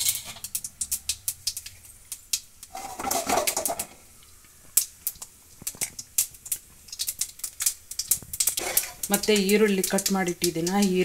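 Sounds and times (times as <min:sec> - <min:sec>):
seeds crackling in hot oil: 0:00.0 - 0:11.0.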